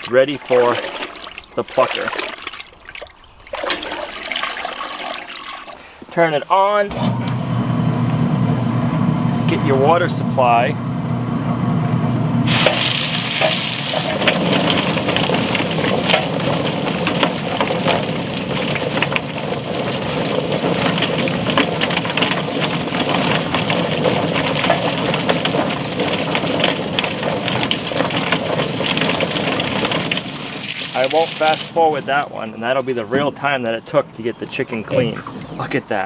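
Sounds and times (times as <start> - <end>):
chicken plucker running: 12.5 - 32.2
hose water spraying: 12.5 - 32.5
dense irregular clatter: 12.5 - 33.3.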